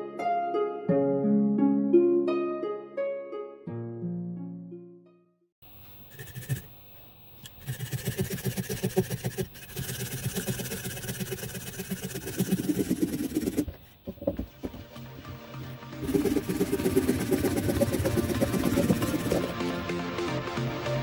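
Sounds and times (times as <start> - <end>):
hand saw cutting branch: 6.1 - 6.7, 7.4 - 13.8, 16.0 - 19.6.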